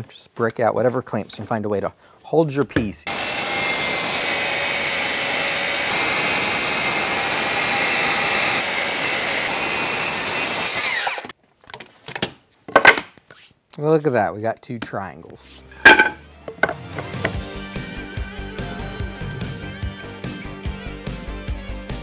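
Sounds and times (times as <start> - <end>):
circular saw cutting wood: 3.1 - 11.3.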